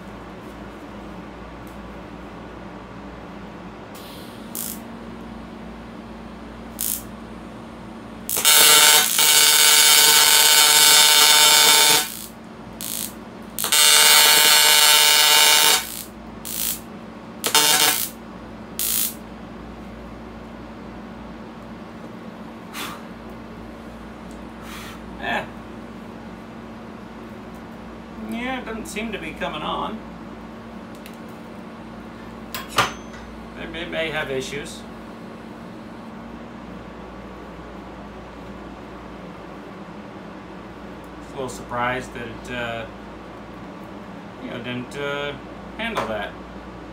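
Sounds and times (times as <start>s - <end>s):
welding arc buzzing: 3.9s - 5.0s, 6.6s - 7.4s, 8.1s - 19.3s
short welding arc bursts: 4.0s - 4.9s, 6.7s - 7.1s, 8.3s - 18.2s, 18.8s - 19.2s.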